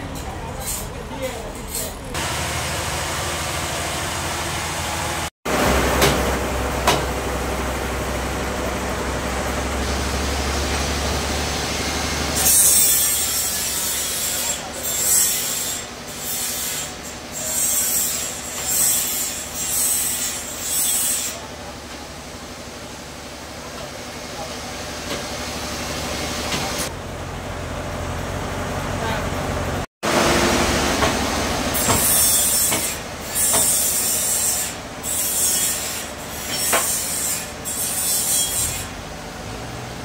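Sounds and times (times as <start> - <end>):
steady motor hum: 0.0 - 14.8
saw blade cutting log: 11.4 - 21.5, 30.3 - 39.0.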